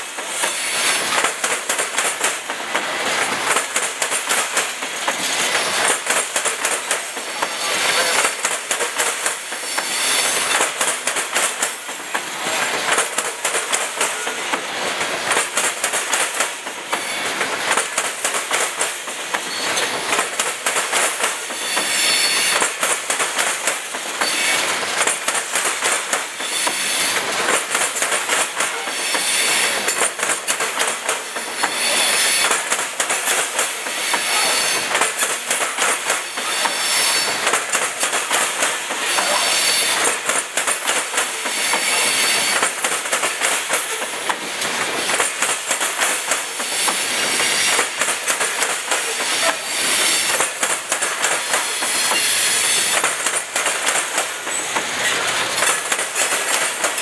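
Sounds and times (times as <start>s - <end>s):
train wheels rumbling: 0.0s - 57.0s
high wheel squeal: 21.6s - 22.6s, 24.2s - 24.6s, 36.5s - 37.4s
wheels clicking over track: 22.5s - 57.0s.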